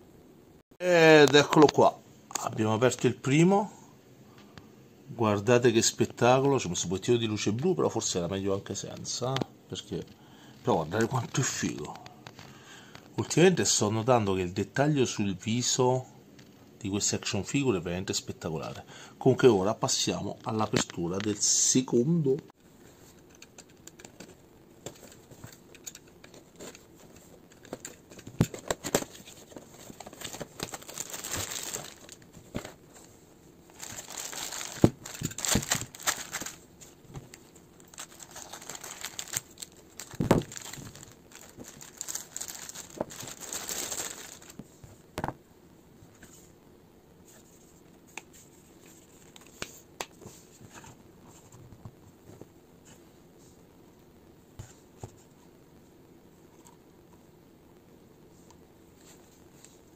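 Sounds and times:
plastic bags crinkling and tearing: 27.8s - 32.8s, 33.7s - 44.6s.

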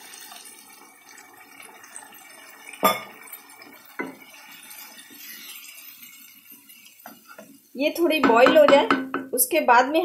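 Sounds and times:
wooden spoon stirring gravy: 3.4s - 8.8s
kitchenware knocks: 8.2s - 9.4s.

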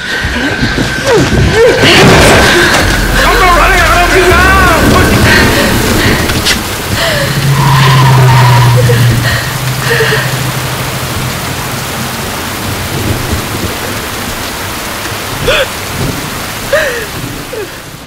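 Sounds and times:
low hum: 0.0s - 14.7s
heavy rain falling: 0.0s - 18.0s
rising and falling cries: 1.0s - 12.2s.

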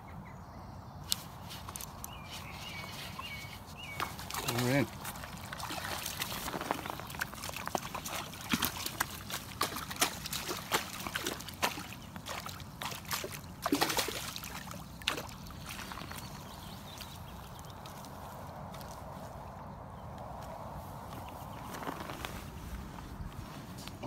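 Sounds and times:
fish splashing in water: 2.7s - 17.5s
water dripping: 3.9s - 18.1s.

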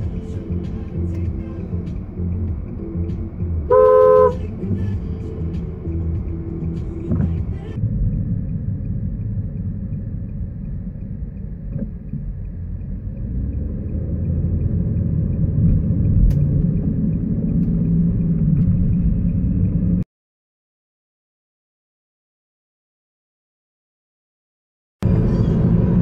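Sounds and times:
car engine and tyres rumbling: 0.0s - 20.0s, 25.0s - 26.0s.

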